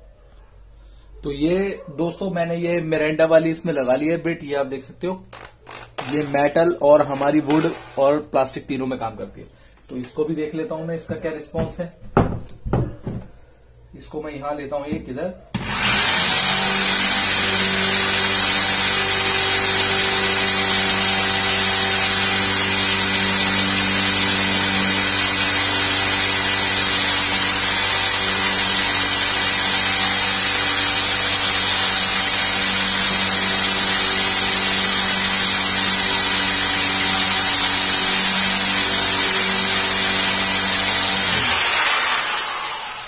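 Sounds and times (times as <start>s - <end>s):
electric drill boring into wood: 5.3s - 8.2s, 15.6s - 43.0s.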